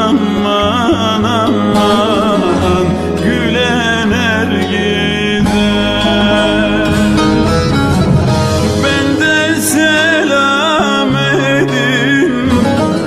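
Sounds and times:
sustained low notes: 1.6s - 11.2s.

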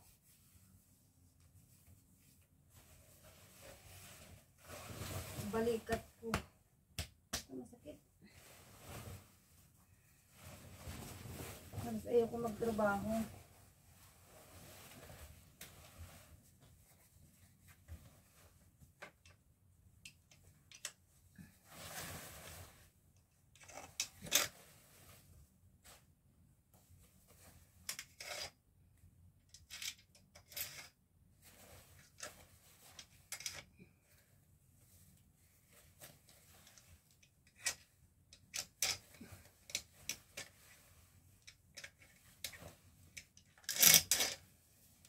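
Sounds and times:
curtain fabric rustling: 0.0s - 6.3s, 8.2s - 18.8s, 21.4s - 23.0s.

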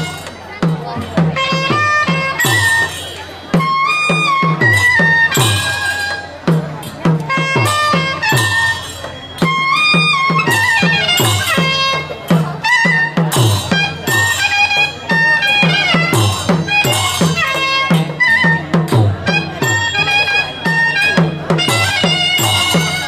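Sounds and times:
drum beat: 0.0s - 23.0s
reedy oboe melody: 7.3s - 23.0s.

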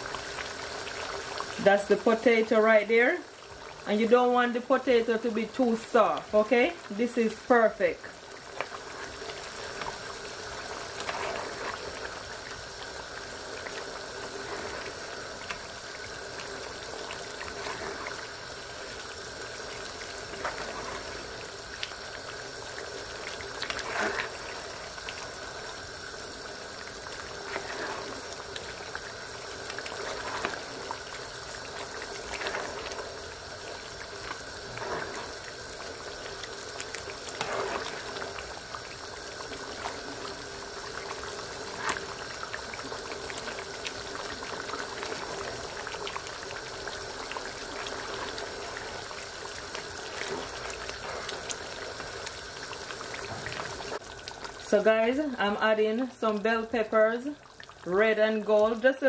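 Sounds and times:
stew simmering and bubbling: 0.0s - 59.0s
ladle stirring stew: 23.3s - 25.2s, 27.1s - 36.2s, 36.8s - 40.1s.

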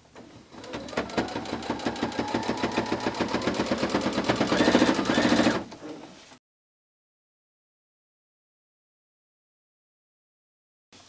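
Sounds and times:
sewing machine motor whine: 0.6s - 5.7s
sewing machine needle rattle: 0.6s - 5.7s.

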